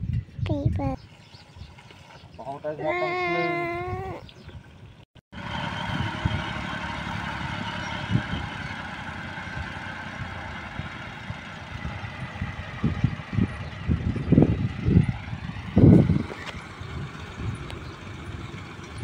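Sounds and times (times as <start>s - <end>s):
tractor engine running: 4.4s - 19.0s.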